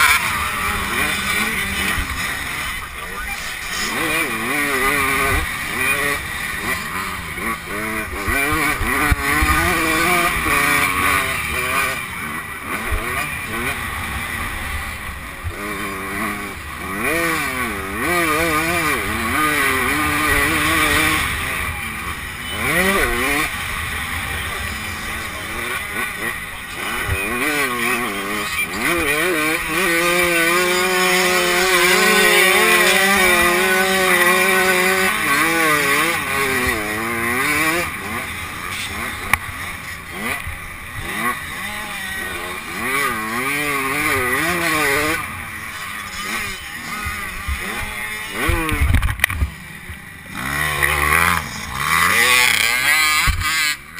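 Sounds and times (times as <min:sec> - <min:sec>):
motorbike engine revving: 0:00.0 - 0:53.9.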